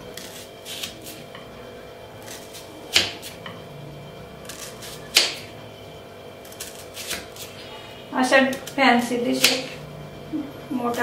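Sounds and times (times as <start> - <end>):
knife cutting onion on board: 0.0 - 1.5, 2.2 - 3.6, 4.4 - 5.6, 6.4 - 7.6, 8.4 - 9.8.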